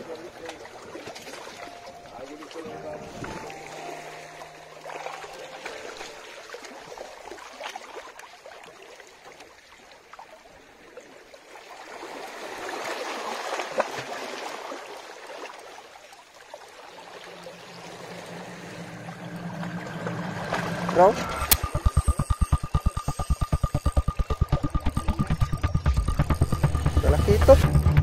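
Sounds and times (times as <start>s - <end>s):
water washing and trickling: 0.0s - 10.9s
small water splashes: 4.7s - 18.3s.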